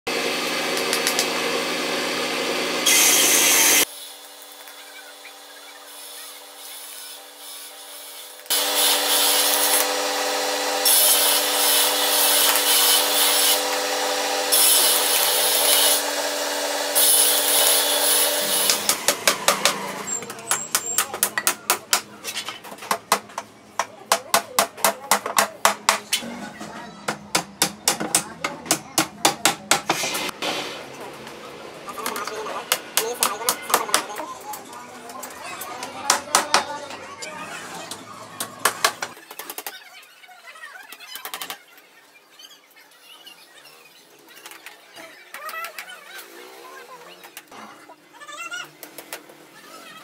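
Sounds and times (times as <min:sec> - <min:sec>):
hand tool working wood: 0:06.7 - 0:23.0.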